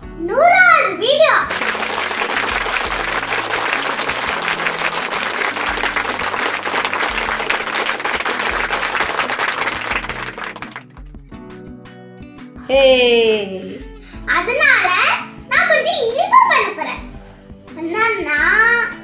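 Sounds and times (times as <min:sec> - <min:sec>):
crowd applause: 0:01.5 - 0:11.0.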